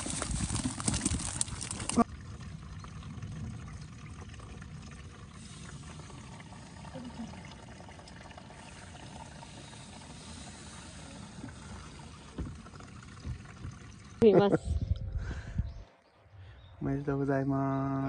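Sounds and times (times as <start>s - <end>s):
water pouring into tank: 0.0s - 14.2s.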